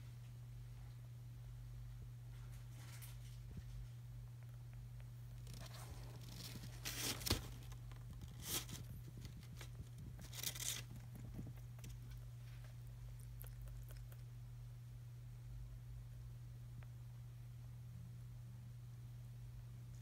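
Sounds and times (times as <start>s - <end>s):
steady low hum: 0.0s - 20.0s
newspaper bedding rustling: 5.6s - 11.0s.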